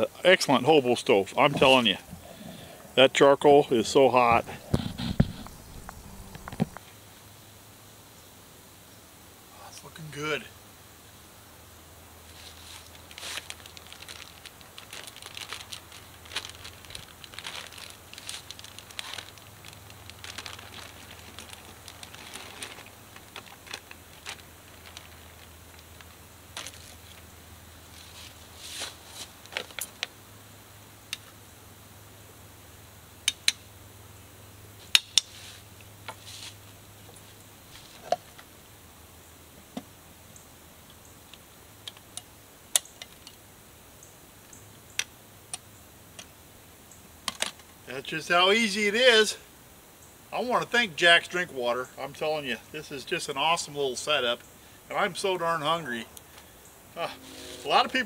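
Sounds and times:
plastic bag crinkling: 12.4 - 27.2.

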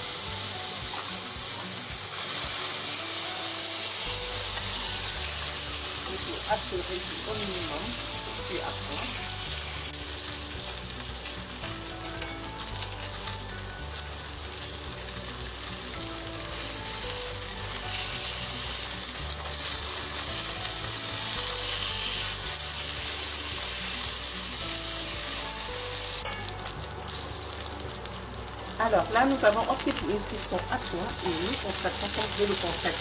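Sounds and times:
fish sizzling in hot oil: 0.0 - 33.0.

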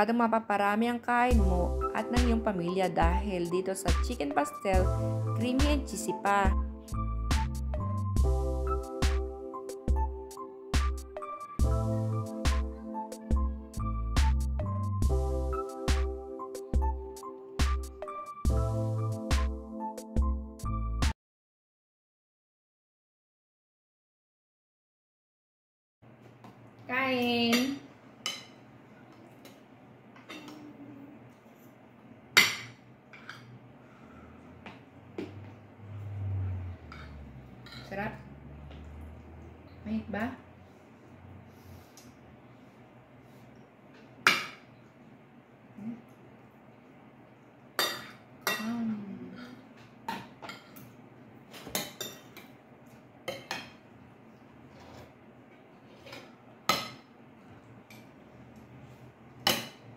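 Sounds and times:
spoons clinking on plates: 27.5 - 28.6, 32.4 - 33.6, 36.9 - 37.9, 47.8 - 48.7, 50.1 - 52.6, 53.2 - 53.8, 59.4 - 59.9.

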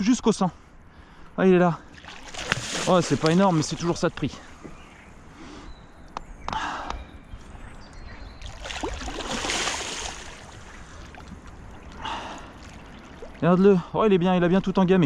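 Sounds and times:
fish splashing in water: 2.0 - 3.9, 8.4 - 13.4.

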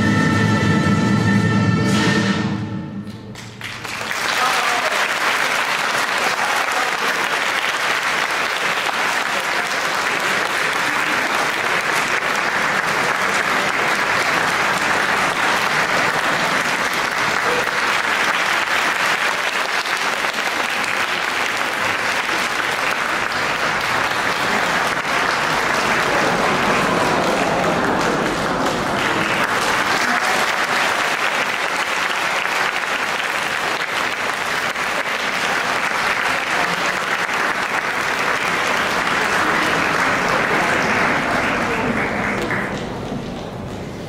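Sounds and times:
audience applauding: 3.1 - 44.0.

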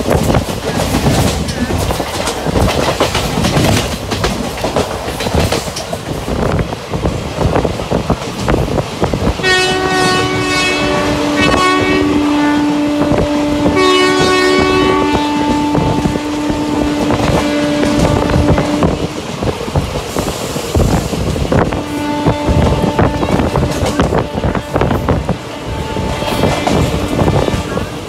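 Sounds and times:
train wheels clattering: 0.0 - 12.1, 13.0 - 28.0
train horn: 9.4 - 19.2, 21.5 - 28.0.

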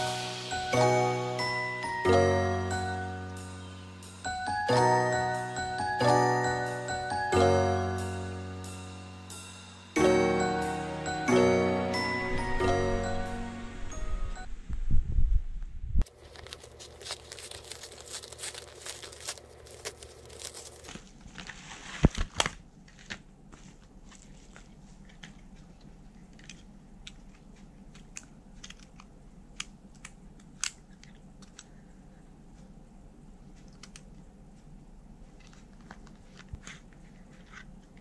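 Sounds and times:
paper envelope tearing: 16.1 - 23.2.

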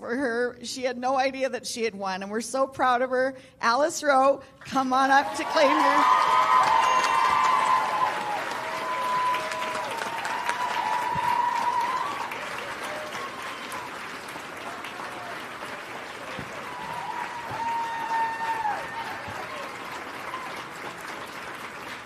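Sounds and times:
audience applauding: 5.2 - 22.0.

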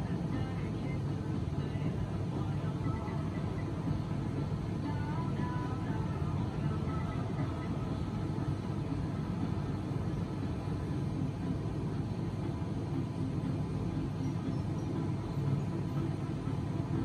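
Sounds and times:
low rumbling background noise: 0.0 - 17.0.

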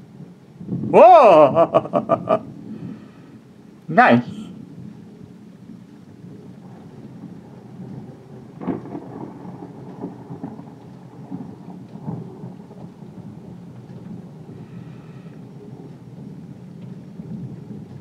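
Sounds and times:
thunder rolling and rumbling: 0.0 - 3.8, 4.5 - 18.0
steady rain: 0.0 - 18.0
sharp thunder clap: 8.0 - 14.6.

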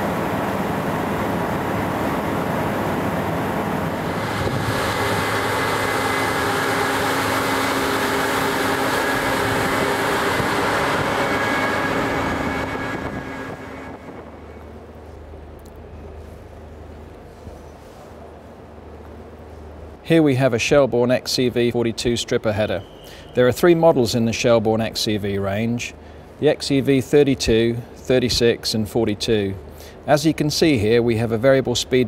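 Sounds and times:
combine harvester drone: 0.0 - 17.7.

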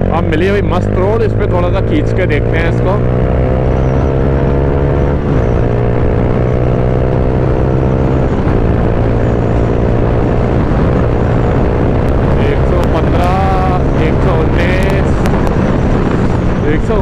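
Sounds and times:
motorcycle engine accelerating: 0.0 - 17.0.

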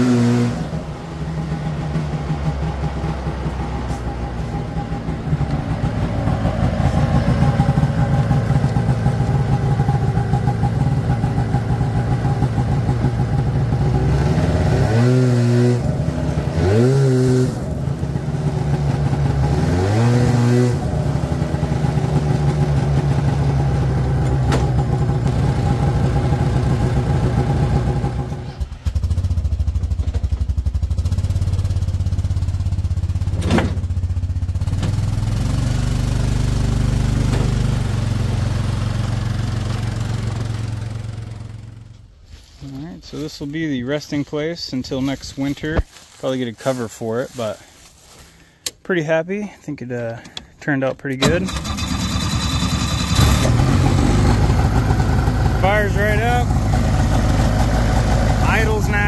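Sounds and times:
snowmobile engine revving: 0.0 - 28.8, 51.2 - 59.0.

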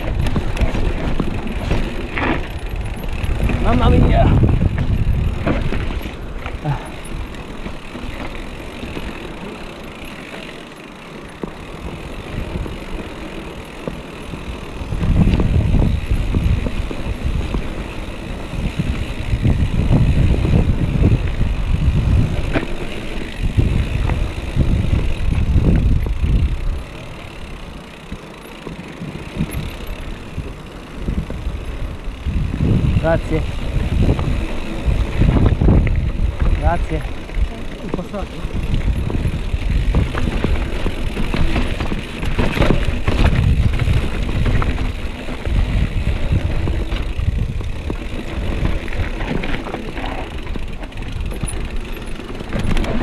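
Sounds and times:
wind on microphone: 0.0 - 7.3, 14.8 - 26.8, 29.4 - 37.7, 38.4 - 49.8
bike rumbling and rattling: 0.0 - 53.0.

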